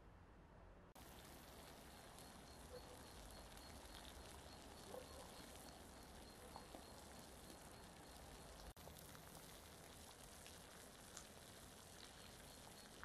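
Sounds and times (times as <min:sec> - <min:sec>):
faint bird chirps: 0:01.7 - 0:08.7.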